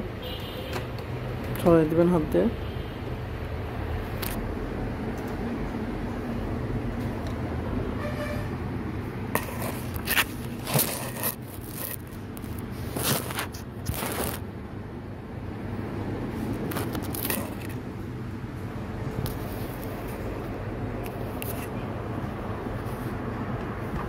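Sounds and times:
steady low hum: 1.0 - 24.0
plastic parts scraping and clicking: 9.4 - 14.4, 16.6 - 17.8.

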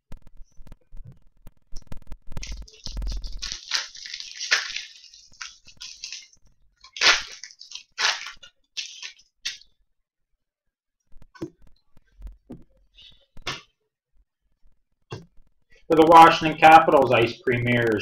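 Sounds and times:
cards rustling while flipped: 2.4 - 9.6.

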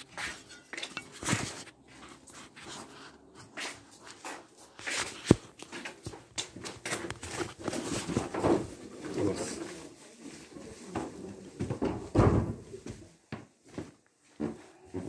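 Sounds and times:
phone rustling against clothing: 0.0 - 8.3
footsteps: 0.0 - 15.0.

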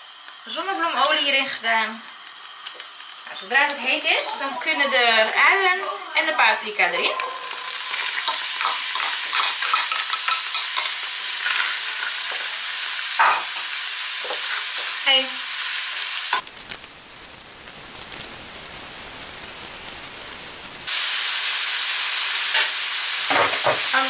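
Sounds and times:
vegetables sizzling in oil: 0.0 - 24.0
spatula scraping pan: 7.0 - 12.5.

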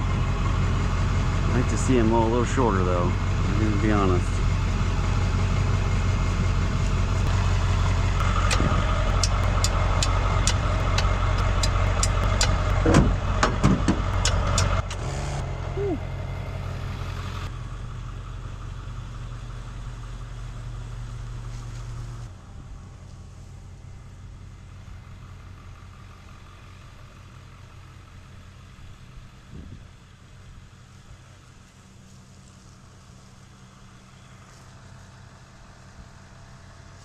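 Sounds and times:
engine running: 0.0 - 37.0
sharp clicks: 8.2 - 12.8, 14.1 - 15.1.

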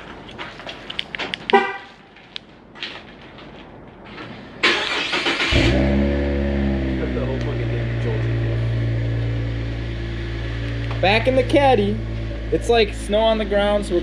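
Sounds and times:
car engine starting and idling: 4.6 - 14.0.

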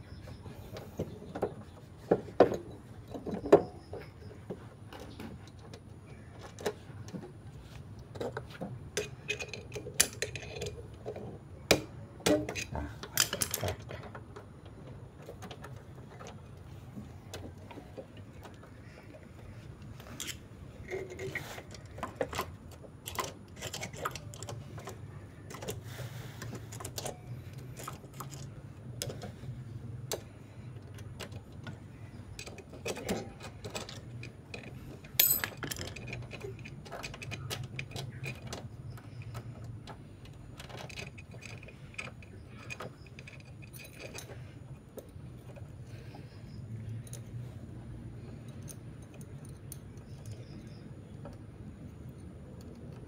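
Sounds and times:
light metallic clicks and clinks: 8.1 - 11.4, 12.3 - 53.0.

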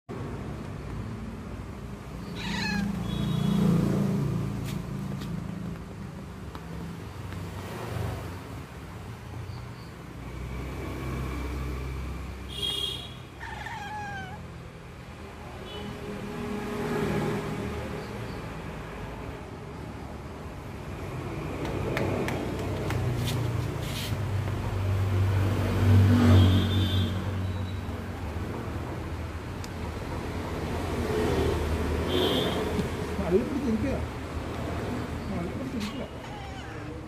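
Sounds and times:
cat meowing: 2.2 - 3.4, 13.3 - 14.5, 35.8 - 37.0.

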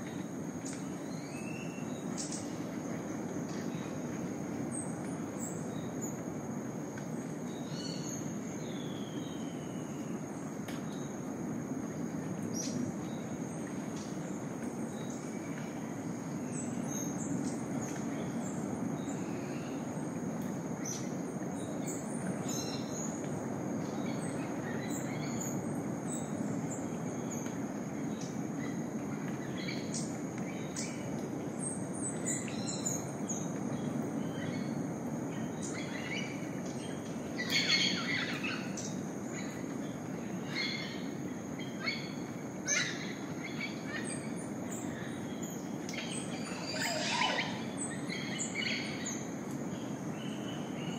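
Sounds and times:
bird calls and chirps: 24.0 - 50.9.

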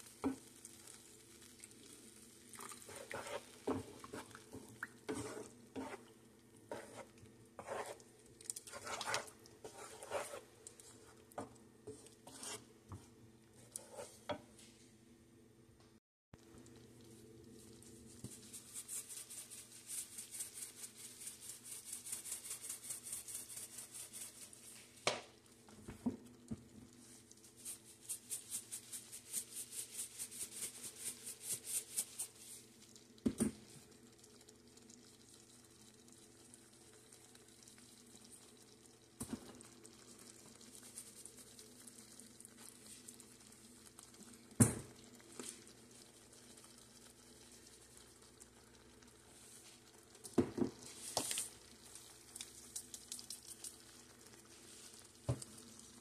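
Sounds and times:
seasoning shakers shaken: 17.9 - 25.0, 27.0 - 32.8, 40.6 - 41.8, 50.8 - 55.7.

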